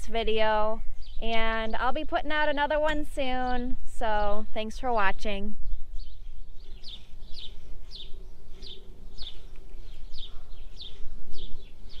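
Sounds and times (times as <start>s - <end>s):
bird chirping: 5.6s - 12.0s.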